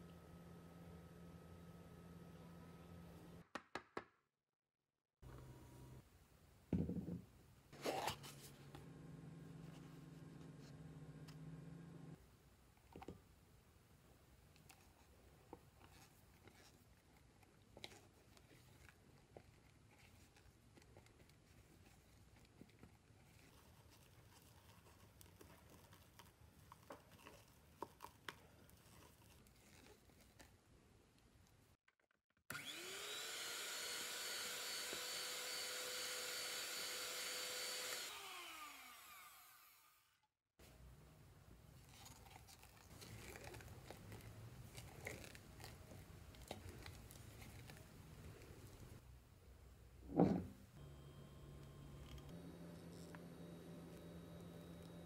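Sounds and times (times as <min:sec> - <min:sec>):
electric hand mixer humming: 0:32.5 - 0:40.0, 0:50.8 - 0:55.0.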